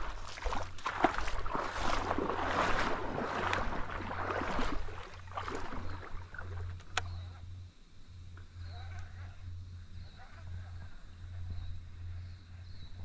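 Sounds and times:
water splashing and sloshing: 0.0s - 7.2s.

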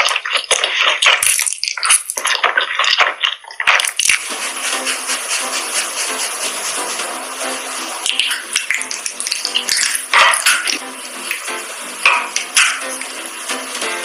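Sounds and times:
crunchy eating: 0.0s - 4.2s
steady hiss: 4.1s - 14.0s.

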